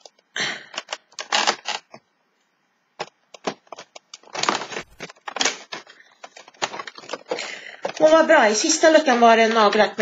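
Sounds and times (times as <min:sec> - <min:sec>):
crackling and tapping of handling: 0:03.0 - 0:10.0.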